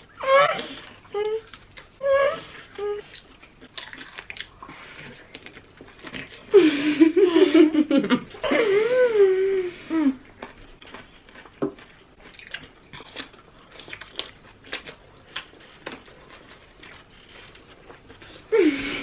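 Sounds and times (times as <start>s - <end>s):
cucumber crunching while chewed: 0.8s - 6.5s, 10.1s - 18.5s.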